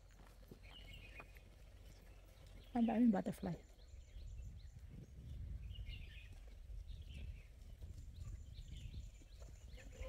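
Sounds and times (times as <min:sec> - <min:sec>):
small birds chirping: 0:00.0 - 0:10.0
wind buffeting microphone: 0:02.6 - 0:10.0.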